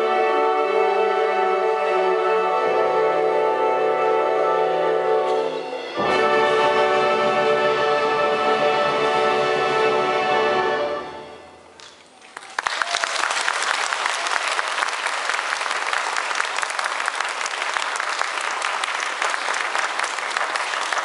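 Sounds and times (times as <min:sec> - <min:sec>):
saxophone ensemble chord: 0:00.0 - 0:11.7
audience applauding: 0:11.8 - 0:21.0.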